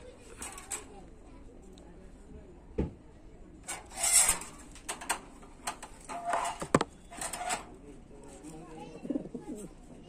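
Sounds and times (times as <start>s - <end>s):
rustling and scraping in cage: 0.2s - 1.0s, 3.6s - 9.7s
pigeon cooing: 8.9s - 9.8s.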